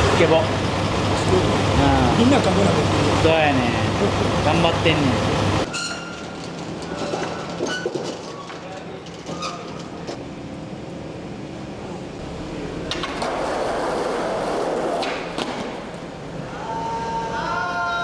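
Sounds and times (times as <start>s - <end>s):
skateboard clack: 12.9s - 16.1s
skateboard wheels rolling on asphalt: 12.9s - 16.4s.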